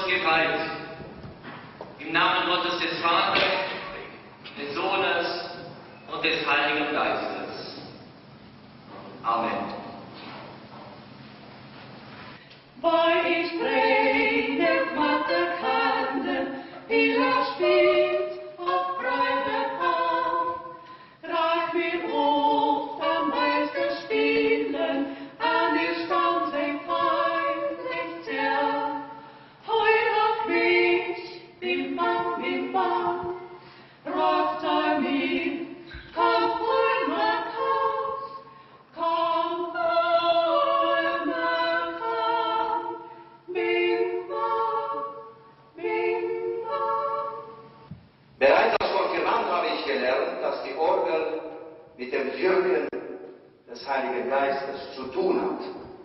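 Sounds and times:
women singing a hymn: 12.6 - 48.0.

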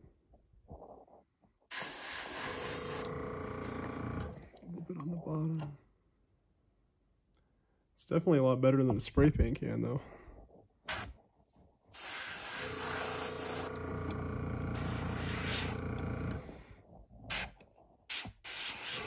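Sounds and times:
airbrush hissing: 1.7 - 3.1, 10.9 - 11.1, 12.0 - 13.7, 14.8 - 15.8, 17.3 - 19.0.

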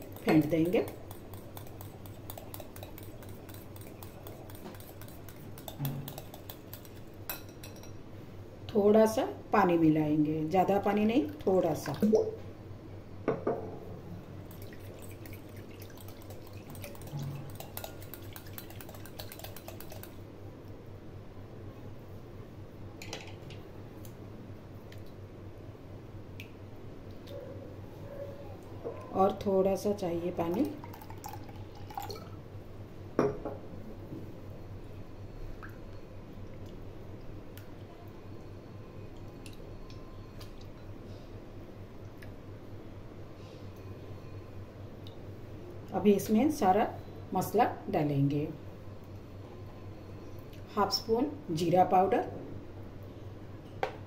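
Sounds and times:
whisk clicking against glass bowl: 0.0 - 7.9, 16.0 - 20.2
water pouring into bowl: 14.5 - 20.2, 30.5 - 32.4.

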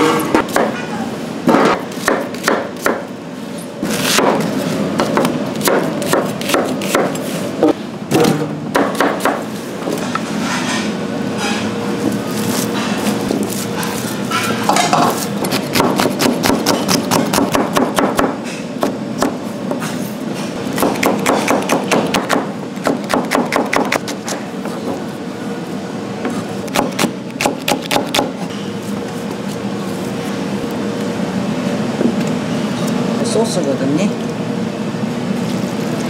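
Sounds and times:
knife chopping on plastic board: 5.0 - 7.2, 8.2 - 9.4, 15.5 - 19.4, 20.8 - 24.4.

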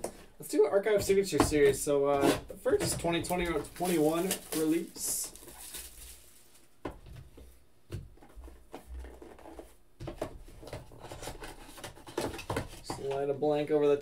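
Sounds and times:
cardboard sheets rustling: 3.0 - 7.6
plastic shrink wrap crinkling: 3.2 - 6.8.

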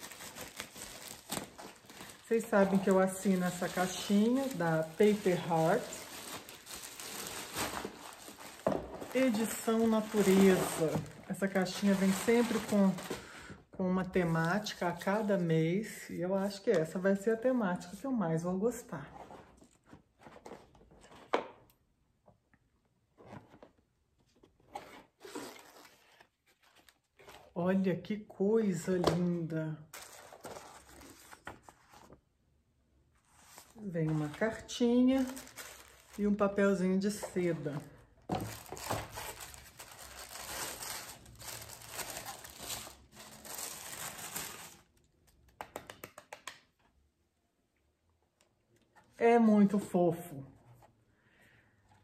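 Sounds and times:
tissue paper crinkling: 0.0 - 13.3, 29.9 - 32.2, 33.2 - 36.6, 38.4 - 44.9.

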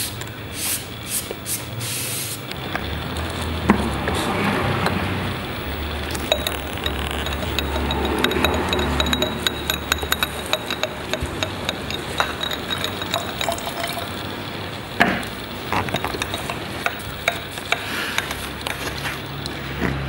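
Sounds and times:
brush clicking against glass: 2.5 - 19.6
water swishing in jar: 5.6 - 19.5
knock on glass jar: 6.1 - 14.2, 15.0 - 18.4.

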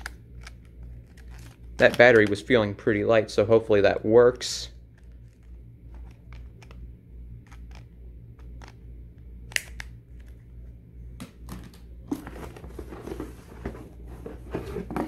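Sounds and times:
cardboard box rustling: 12.1 - 15.0.

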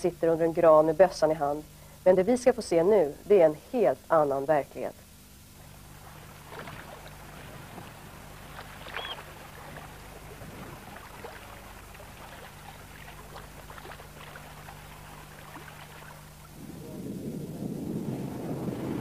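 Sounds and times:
steady low hum: 0.0 - 19.0
water lapping and splashing: 5.5 - 19.0
short high chirp: 8.9 - 9.2.

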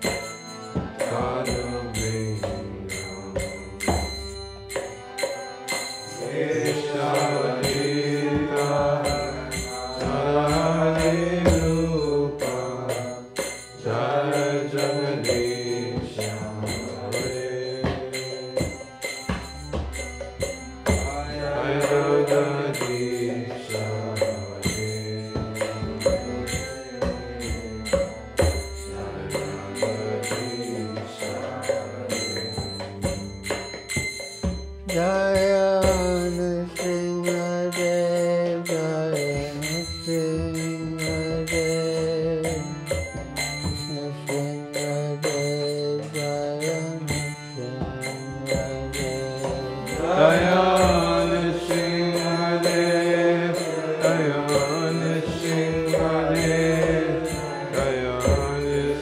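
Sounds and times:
hand cymbals striking: 0.0 - 59.0
voices chanting: 0.8 - 34.2, 47.9 - 59.0.

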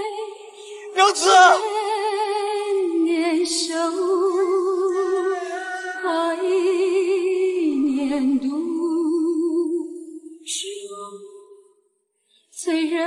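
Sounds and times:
woman singing with vibrato: 0.0 - 9.8.

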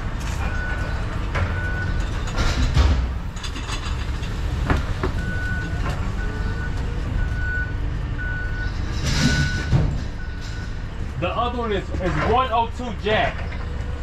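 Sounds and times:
forklift engine rumble: 0.0 - 14.0
forklift backup alarm beeping: 0.4 - 2.4, 5.1 - 10.9.

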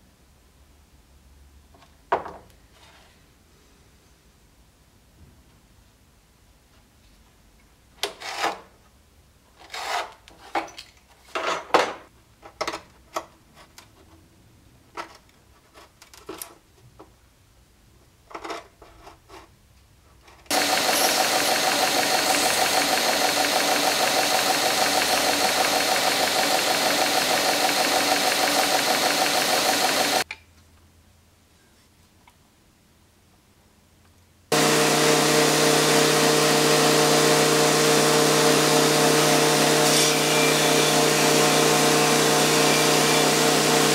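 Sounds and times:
belt grinder sanding: 20.5 - 30.2, 34.5 - 43.9.

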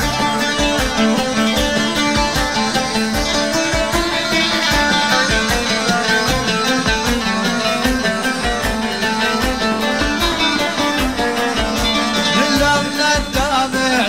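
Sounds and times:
plucked string melody: 0.0 - 14.0
steady drum beat: 0.0 - 14.0.

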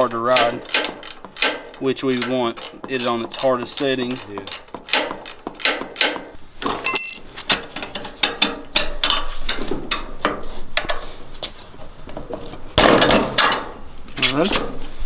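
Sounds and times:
ratchet wrench clicking: 0.7 - 3.1, 3.8 - 6.1
metal-on-metal knocks: 4.4 - 9.2
metallic ring: 6.8 - 7.6.

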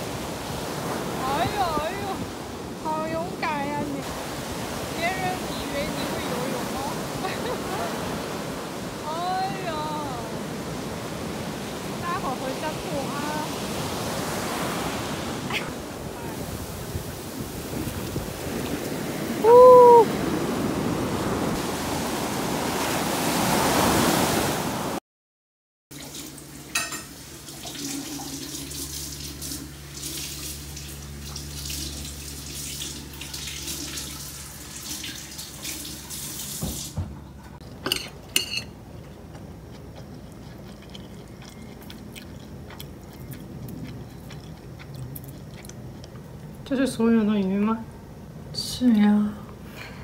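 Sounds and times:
surf washing over sand: 0.0 - 25.0.

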